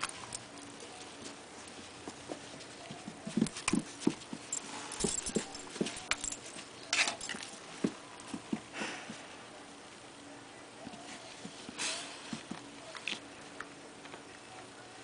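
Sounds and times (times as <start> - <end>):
dogs thumping and scuffling: 0.0 - 9.2.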